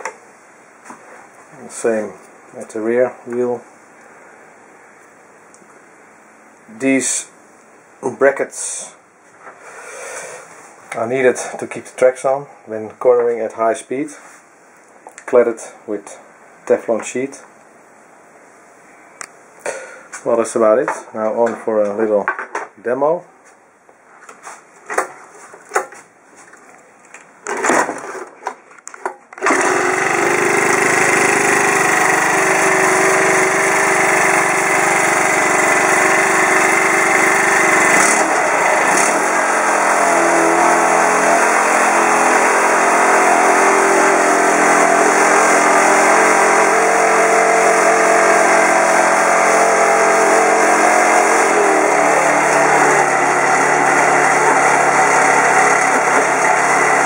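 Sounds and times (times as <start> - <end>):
small engine starting and running: 29.4 - 57.0.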